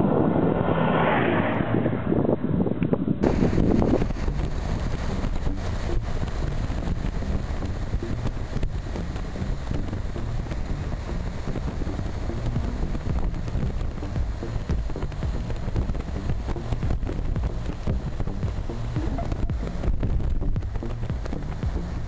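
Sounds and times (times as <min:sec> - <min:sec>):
motorcycle engine and road noise: 0:00.0 - 0:22.0
wind rushing over microphone: 0:00.0 - 0:22.0.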